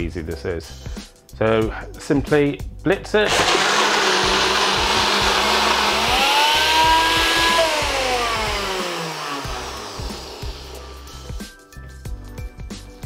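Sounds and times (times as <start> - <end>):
blender motor whining: 3.2 - 11.2.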